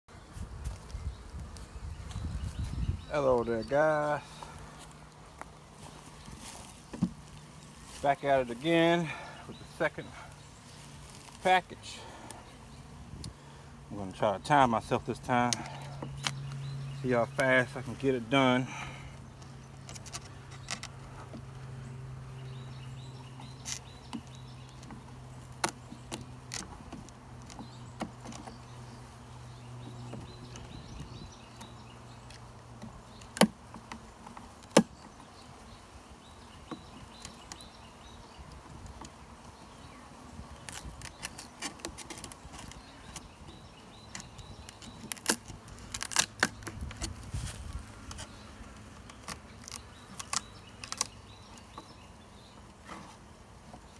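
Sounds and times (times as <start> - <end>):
honey bees humming: 0.1 - 53.9
hive tool prying at wood: 23.4 - 28.6, 31.5 - 35.2, 40.6 - 47.2, 48.0 - 51.9.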